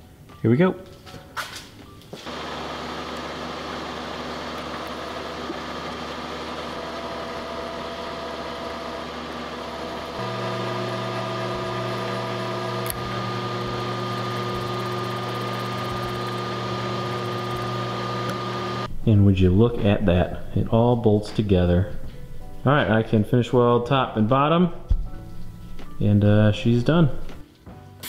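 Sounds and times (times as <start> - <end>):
milling machine humming: 2.2 - 18.9.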